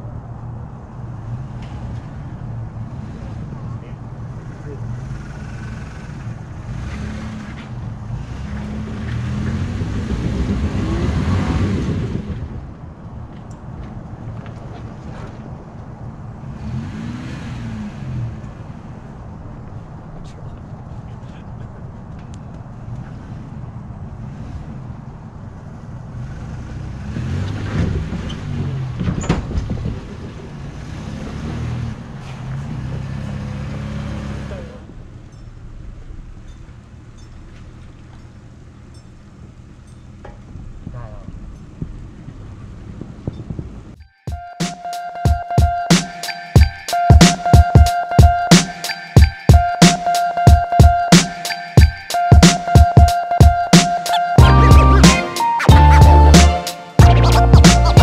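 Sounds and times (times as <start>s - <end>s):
truck engine pulling: 0.0s - 44.0s
tyre and wind noise: 6.2s - 44.0s.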